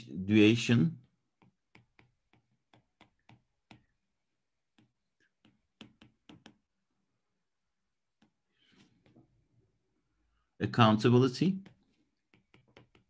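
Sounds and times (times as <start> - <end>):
stylus tapping on tablet: 1.3 - 6.8, 8.1 - 8.4, 11.5 - 13.0.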